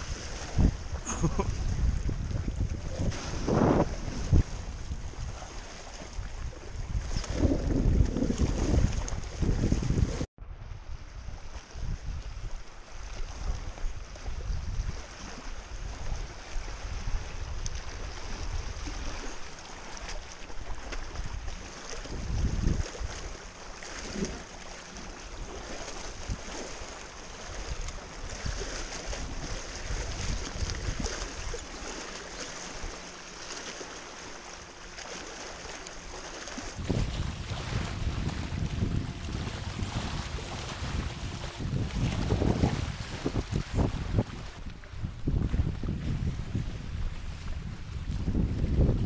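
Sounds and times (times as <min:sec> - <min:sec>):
waves lapping against rocks: 0:00.0 - 0:10.3, 0:11.2 - 0:49.0
wind gusting over microphone: 0:00.0 - 0:19.2, 0:21.1 - 0:23.3, 0:27.5 - 0:31.7, 0:36.7 - 0:49.0.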